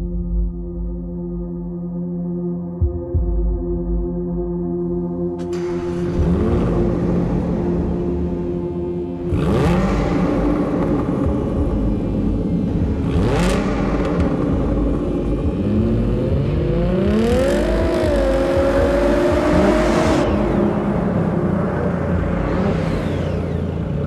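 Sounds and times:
sports car engine revving: 5.4 - 24.0.

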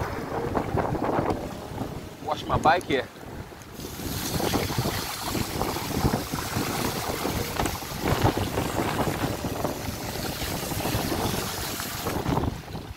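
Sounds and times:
wind noise on microphone: 0.0 - 12.9
bicycle tyres splashing through water: 3.7 - 12.9.

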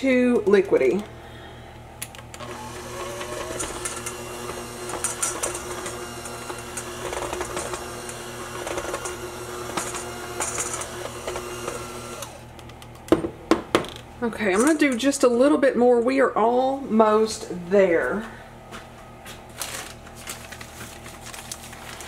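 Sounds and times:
electric hand mixer running: 2.4 - 12.6.

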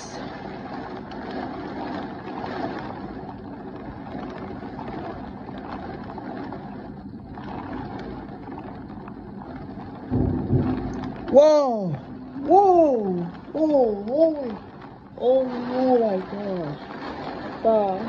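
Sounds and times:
gusting wind: 0.0 - 18.0
heavy rain pouring: 0.0 - 18.0
loud low thump: 10.1 - 12.5.

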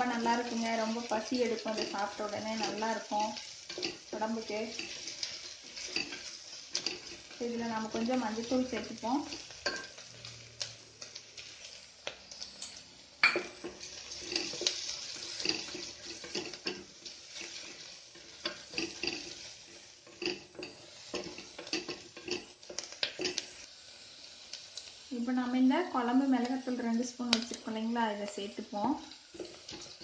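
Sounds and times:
onions sizzling in oil: 0.0 - 30.0
spatula knocking and scraping pot: 13.2 - 23.5.

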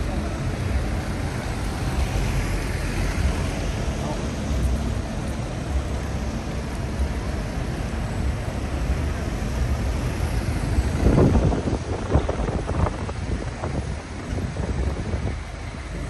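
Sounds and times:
traffic rumble: 0.0 - 16.0
wind buffeting microphone: 9.3 - 16.0.

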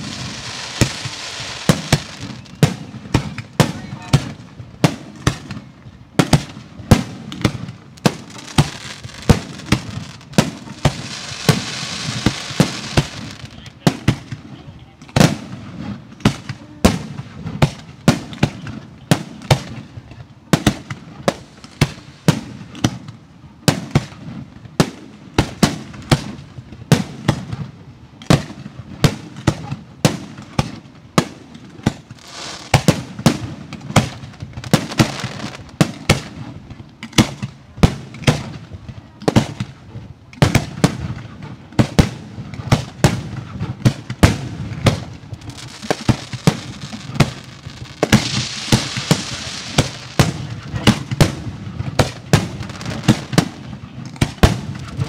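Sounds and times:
dense firework hissing: 0.0 - 2.6, 8.1 - 13.6, 32.2 - 33.2, 45.2 - 50.7
firework shells bursting: 0.0 - 4.3, 6.3 - 14.4, 31.8 - 36.3, 41.9 - 55.0.

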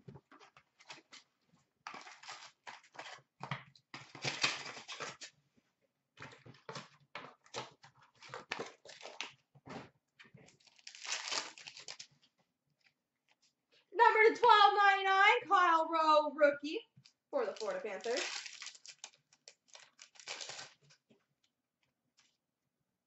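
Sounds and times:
card pack wrappers crinkling: 1.9 - 3.2, 4.0 - 5.3, 7.5 - 9.4, 10.5 - 12.2, 17.4 - 21.0.

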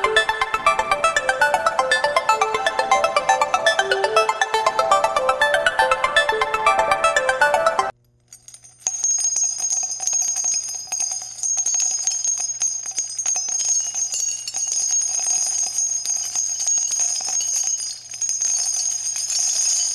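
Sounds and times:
jingle bells shaking: 0.0 - 6.8, 8.4 - 19.9.

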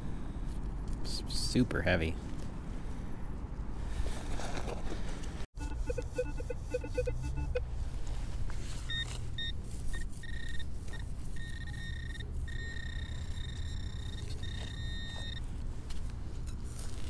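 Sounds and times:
metal detector low beeps: 5.6 - 7.7, 8.8 - 15.5
pinpointer high electronic tone: 5.6 - 7.8, 11.4 - 15.4.

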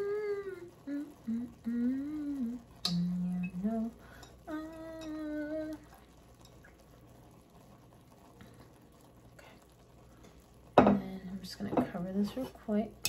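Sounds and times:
woman humming: 0.0 - 5.9.

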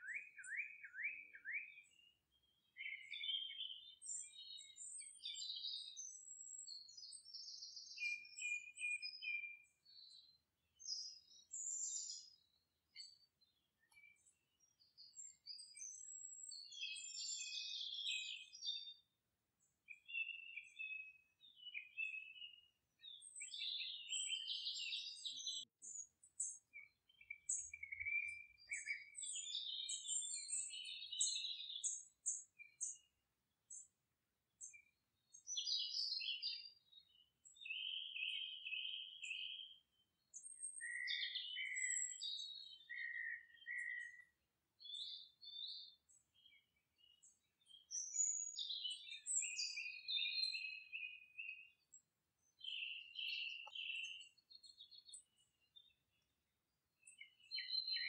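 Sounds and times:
birds chirping: 40.7 - 56.2.

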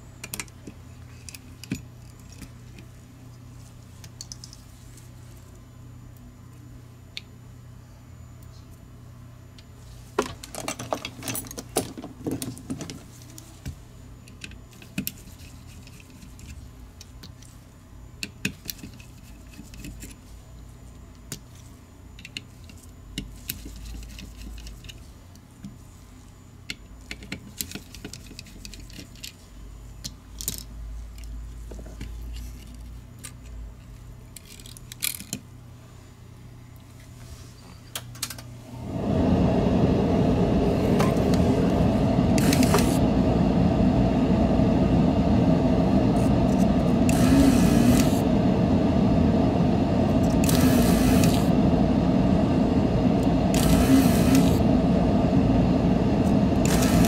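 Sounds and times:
steady low hum: 0.0 - 57.0
screwdriver on small screws: 47.1 - 48.2, 50.2 - 51.5, 53.5 - 54.6, 56.6 - 57.0.

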